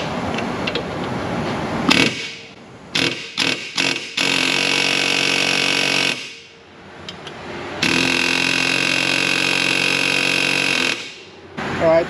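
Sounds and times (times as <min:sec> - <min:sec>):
pneumatic air chisel hammering: 0:01.9 - 0:06.6, 0:07.8 - 0:11.4.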